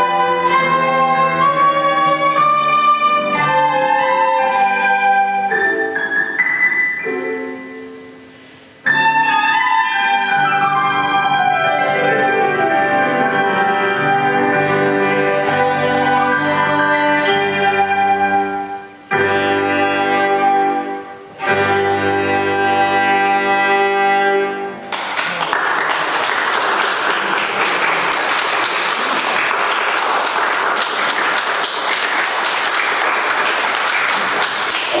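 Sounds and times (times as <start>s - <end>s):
flute violin and piano chords: 0.0s - 24.9s, 34.8s - 35.0s
audience applause: 24.9s - 35.0s.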